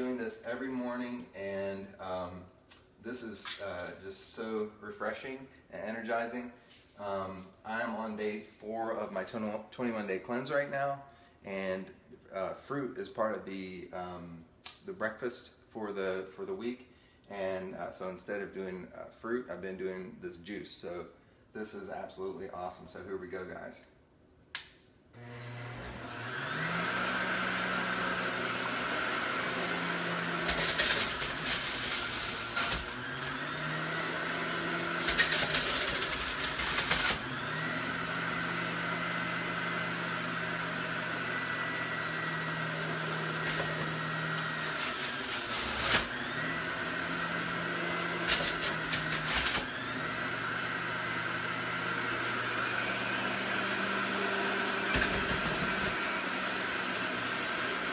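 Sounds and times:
juicer grinding produce: 25.2s - 57.9s
juicer motor whining: 25.2s - 57.9s.

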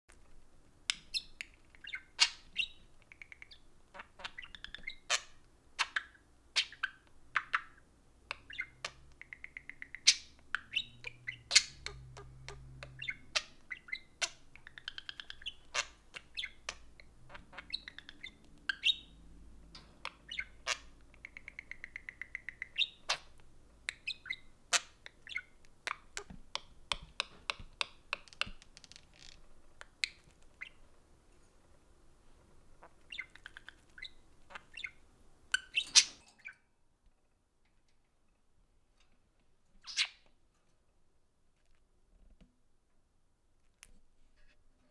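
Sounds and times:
budgerigars chirping: 0.9s - 26.3s, 29.2s - 30.8s, 32.8s - 36.2s, 39.8s - 40.2s.

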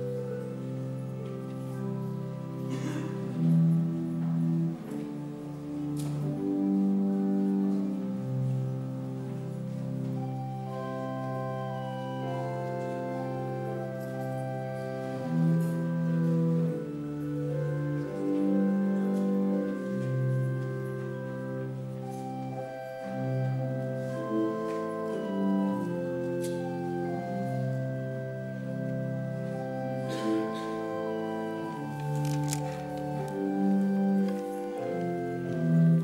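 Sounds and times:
church organ playing chords: 0.0s - 36.0s.

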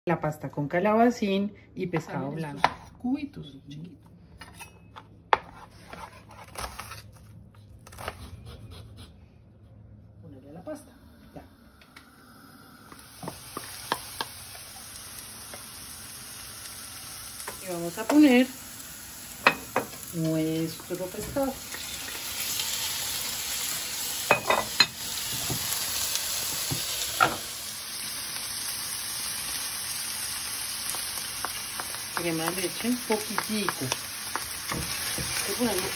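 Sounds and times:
food sizzling in a frying pan: 12.8s - 35.9s.

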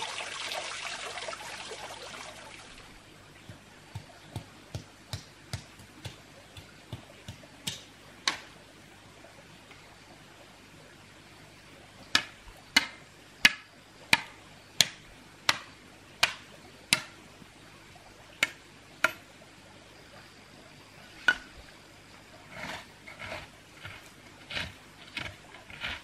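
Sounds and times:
hoe scraping soil: 22.3s - 26.0s.

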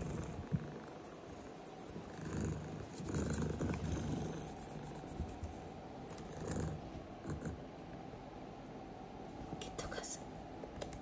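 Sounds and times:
cat purring: 0.0s - 5.4s
short high chirps: 0.9s - 2.0s.

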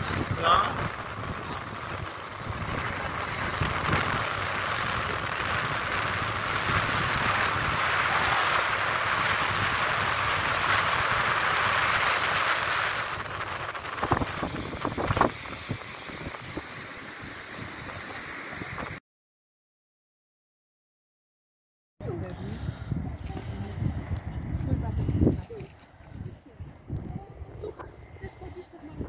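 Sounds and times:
surf rushing onto beach: 0.0s - 19.0s
wind on microphone: 0.0s - 19.0s, 22.0s - 29.0s.

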